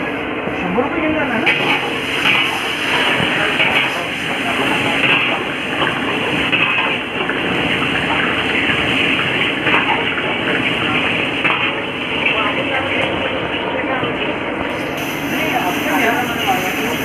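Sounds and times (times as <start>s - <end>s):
steady noisy rush: 0.0s - 17.0s
water swished in steel wok: 1.5s - 17.0s.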